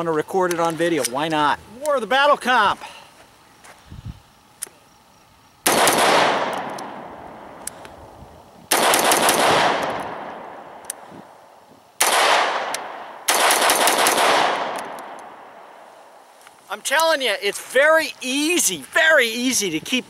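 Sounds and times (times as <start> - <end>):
rapid rifle shots: 5.6 - 7.0, 8.7 - 10.6, 12.0 - 15.2.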